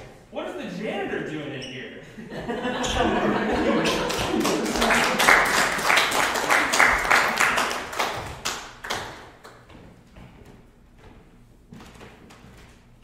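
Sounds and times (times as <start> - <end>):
small audience applauding: 2.9 - 9.7.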